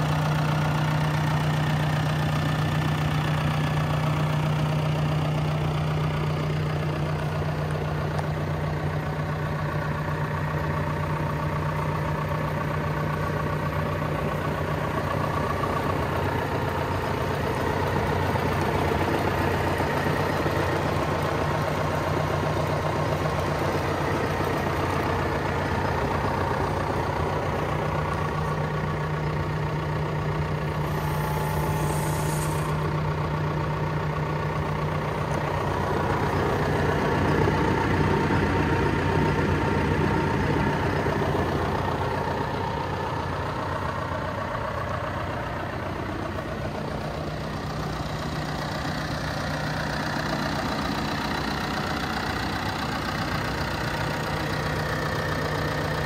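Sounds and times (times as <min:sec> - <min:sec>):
tractor diesel engine idling: 0:00.0 - 0:56.0
high hiss: 0:30.8 - 0:33.0.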